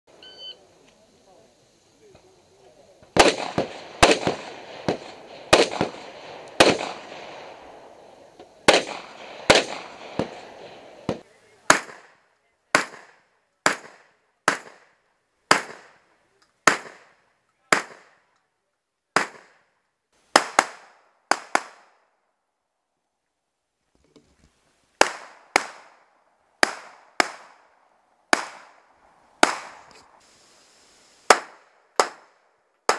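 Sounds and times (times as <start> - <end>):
gunshots with short echo: 3.2 - 7.8, 8.7 - 12.1.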